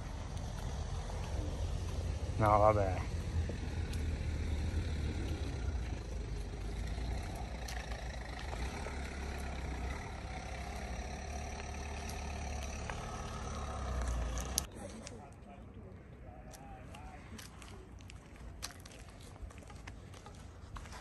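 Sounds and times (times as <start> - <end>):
vehicle engine running: 0.0 - 14.7.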